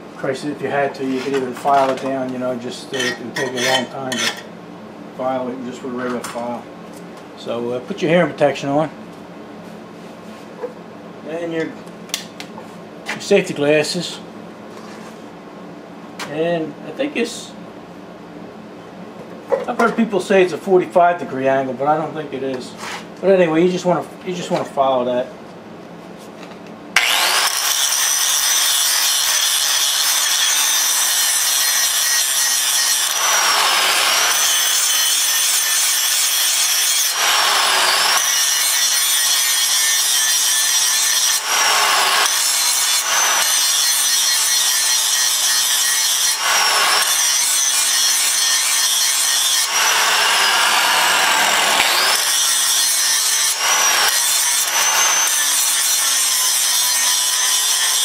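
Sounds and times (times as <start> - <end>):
angle grinder grinding metal: 2.8 - 4.5, 27.0 - 58.0.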